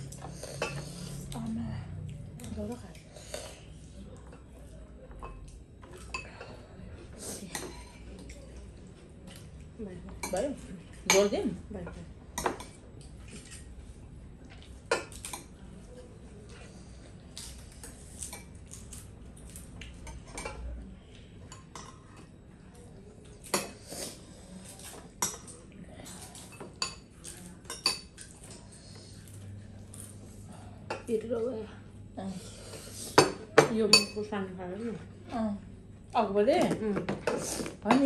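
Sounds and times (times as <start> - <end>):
metal spoons clinking on bowls: 26.4 - 28.4, 33.2 - 34.3.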